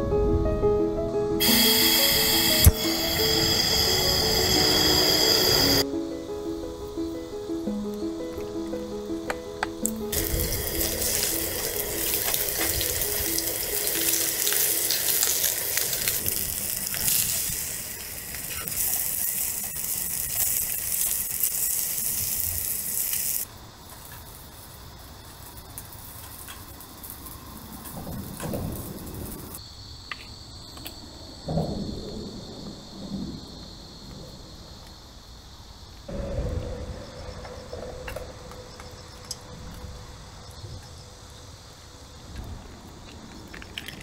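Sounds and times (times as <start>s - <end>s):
light background music: 0.0s - 16.5s
running water: 10.1s - 23.4s.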